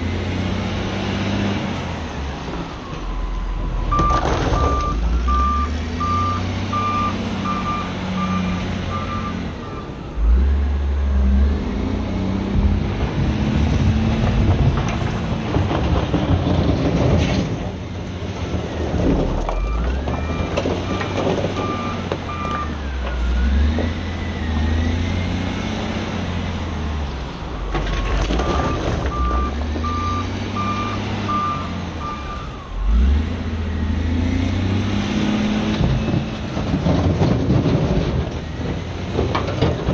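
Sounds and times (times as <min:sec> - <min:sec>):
diesel engine revving: 0:00.0 - 0:39.9
reversing alarm beeping: 0:02.8 - 0:09.9, 0:19.5 - 0:23.7, 0:27.6 - 0:33.2
knocks and rattles: 0:12.5 - 0:23.2, 0:35.6 - 0:39.9.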